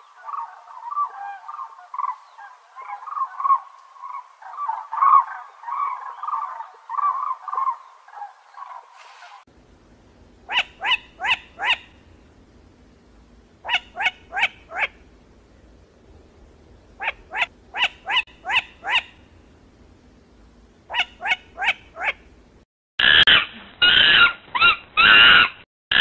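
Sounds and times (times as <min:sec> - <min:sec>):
crane calling: 0:00.0 - 0:09.5, 0:10.4 - 0:12.8, 0:13.5 - 0:15.2, 0:16.7 - 0:19.6, 0:20.9 - 0:22.3.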